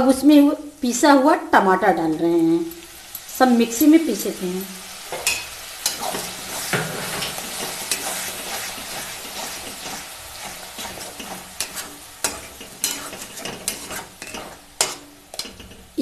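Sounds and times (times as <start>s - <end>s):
tomato puree sizzling in oil: 0.0s - 16.0s
metal spatula clinking and scraping: 5.1s - 15.9s.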